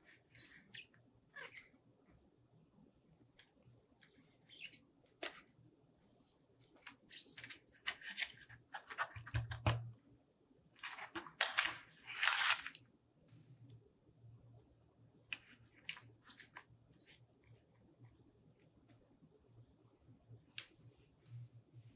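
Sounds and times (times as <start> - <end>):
paper card tearing: 10.8 - 12.8.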